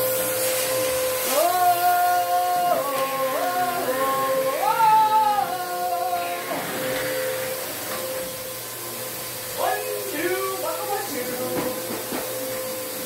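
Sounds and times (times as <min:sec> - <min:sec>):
vacuum cleaner whine: 0:00.0 - 0:13.0
person singing: 0:01.2 - 0:07.0, 0:09.5 - 0:12.4.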